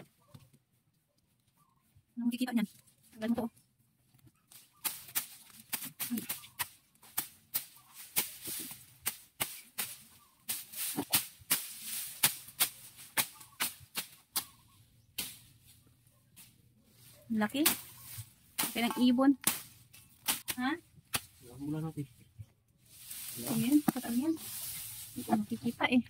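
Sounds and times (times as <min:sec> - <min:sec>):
machete chopping grass: 0:04.8 - 0:14.6, 0:15.2 - 0:15.5, 0:17.6 - 0:21.4.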